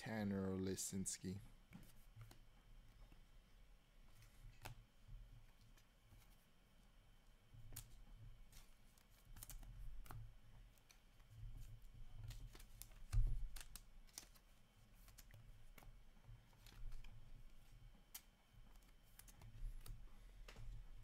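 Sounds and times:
cards clicking and rustling: 7.6 - 11.3, 12.1 - 20.8.

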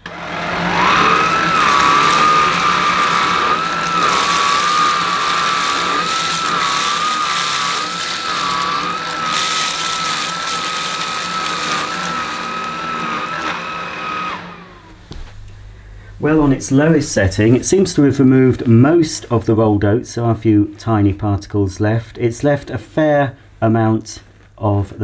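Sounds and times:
vacuum motor whine: 0.0 - 15.6.

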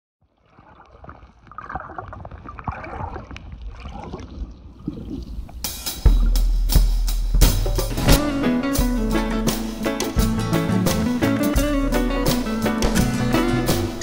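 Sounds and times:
muffled water bubbling and splashing: 0.2 - 8.2
loud music with drum hits: 5.6 - 14.0.

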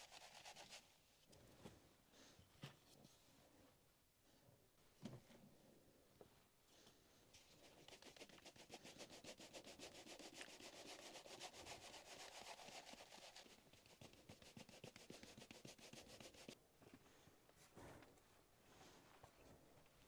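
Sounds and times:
fast rubbing or scraping strokes: 7.6 - 16.6.

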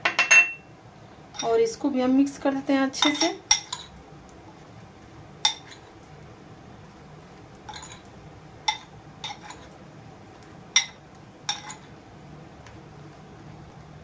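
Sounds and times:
metal spoon clinking against glass bowl: 0.1 - 0.6, 7.7 - 8.0, 10.8 - 11.8.

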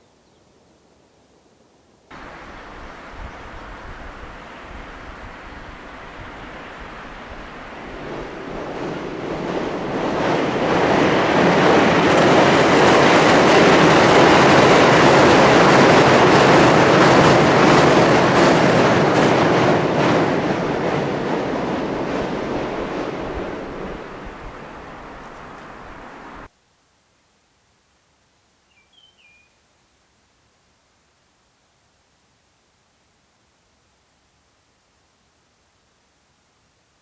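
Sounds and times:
train wheel and rail noise: 2.1 - 26.5
wheels clacking over rail joints: 2.2 - 26.5.

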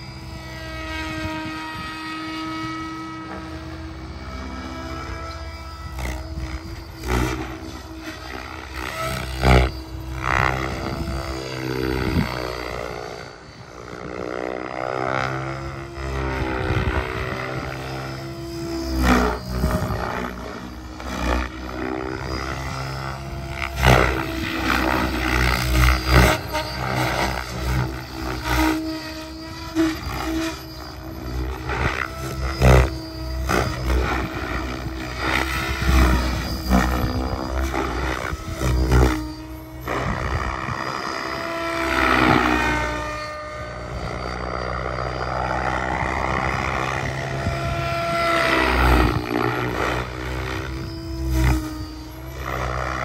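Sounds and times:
model helicopter rotor and motor whine: 0.0 - 53.0.

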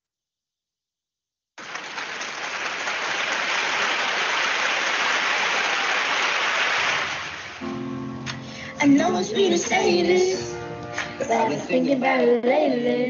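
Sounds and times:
crowd applause: 1.6 - 7.7.

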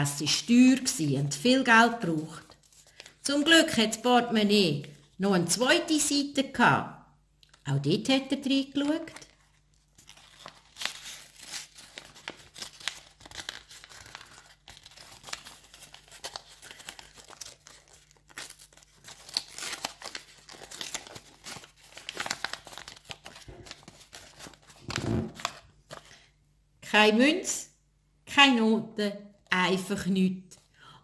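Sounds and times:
paper rustling and crinkling: 2.3 - 3.2, 9.0 - 26.3
paper tearing: 9.9 - 25.6.

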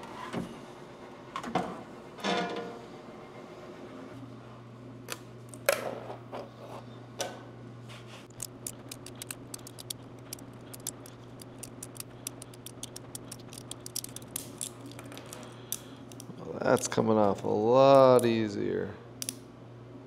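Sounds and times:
low hum: 8.3 - 17.8.

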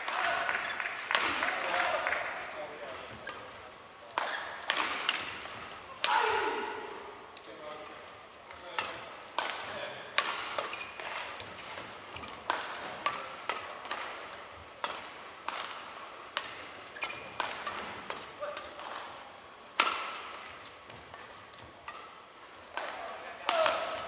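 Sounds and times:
rackets hitting shuttlecock: 4.1 - 7.0, 8.5 - 19.2, 19.8 - 24.0
shoes squeaking on court: 10.6 - 12.4, 16.8 - 17.9.

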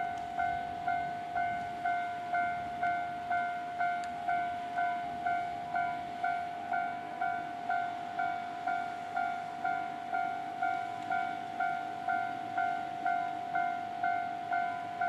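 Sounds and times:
level crossing warning bell: 0.0 - 15.0.

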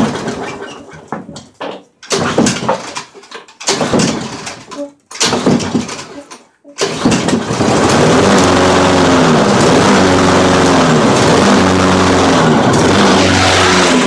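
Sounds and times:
small engine revving: 6.8 - 14.0.

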